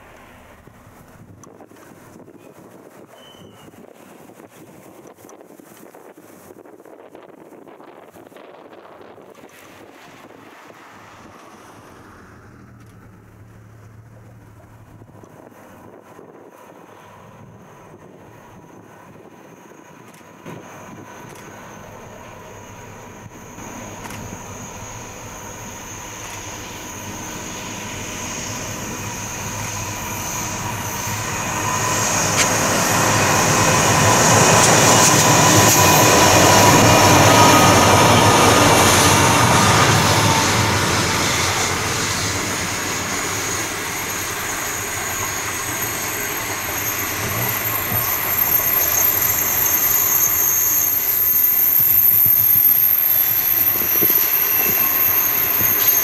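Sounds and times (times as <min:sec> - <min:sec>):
diesel train passing: 0:00.0 - 0:04.9, 0:07.0 - 0:56.0
wheels squealing on a curve: 0:24.3 - 0:56.0.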